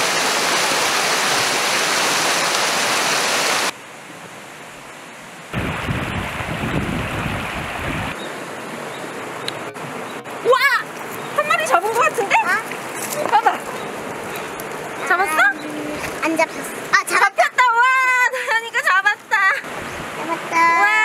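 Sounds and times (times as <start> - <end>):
water rushing over rocks: 0.0 - 4.7, 5.4 - 21.0
wind rumble on microphone: 5.5 - 8.2.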